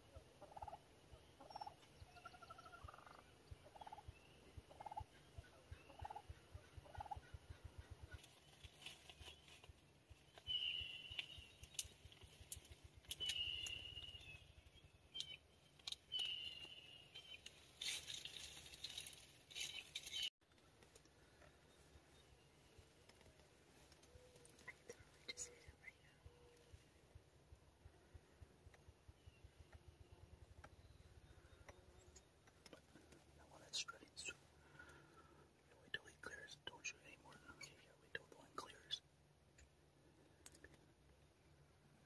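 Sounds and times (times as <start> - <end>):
turkey gobbles: 0.1 - 4.1, 4.7 - 8.4
turkey calls: 0.1 - 9.4
short rustle: 17.4 - 20.3.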